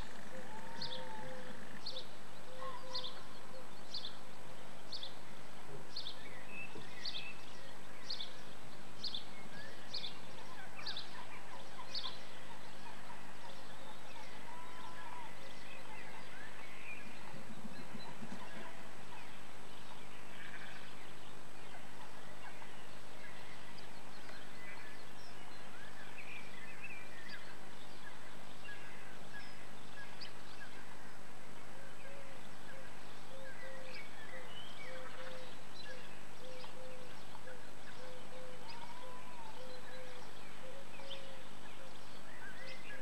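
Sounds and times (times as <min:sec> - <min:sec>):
bird chirps and calls: 0:05.9 - 0:31.0.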